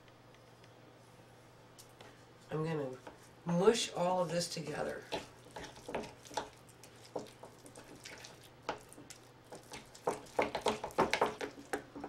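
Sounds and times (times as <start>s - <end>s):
spoon mashing paste in bowl: 4.6s - 12.0s.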